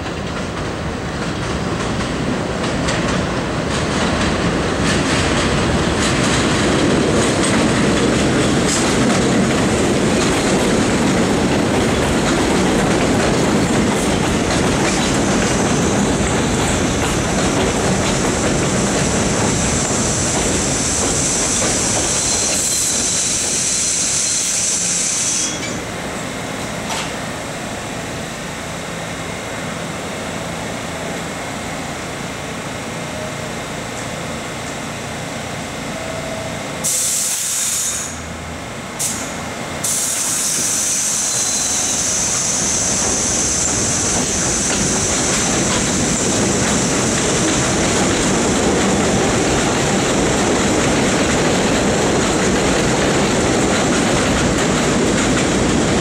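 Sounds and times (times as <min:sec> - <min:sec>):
subway train rumbling: 0:00.0 - 0:56.0
train brakes squealing: 0:18.6 - 0:26.0, 0:35.9 - 0:38.3, 0:39.0 - 0:48.0.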